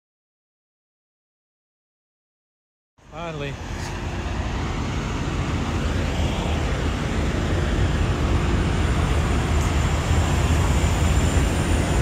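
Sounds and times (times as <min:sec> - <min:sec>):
diesel trucks idling: 0:03.1 - 0:12.0.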